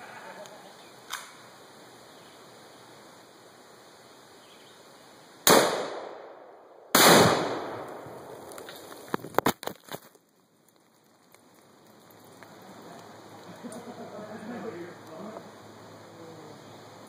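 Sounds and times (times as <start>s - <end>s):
loud gunshot bangs: 5.5s - 8.0s
debris ticks and clatters: 8.4s - 13.1s.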